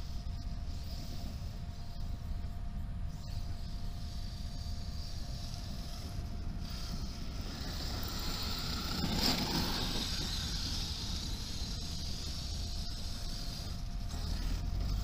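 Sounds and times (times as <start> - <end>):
high-pitched electric motor whine: 0.0 - 15.0.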